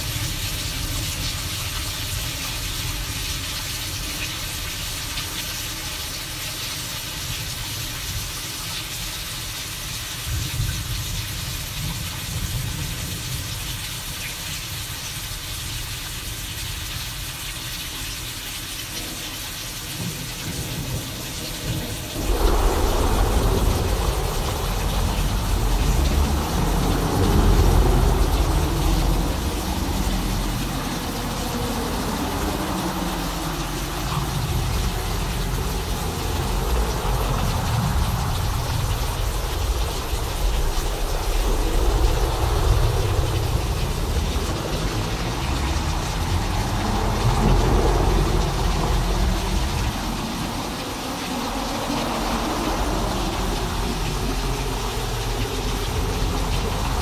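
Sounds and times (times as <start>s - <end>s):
rain-like hiss: 0.0s - 57.0s
low rumble: 21.8s - 57.0s
loud thunder roll: 21.9s - 32.4s, 33.2s - 49.5s.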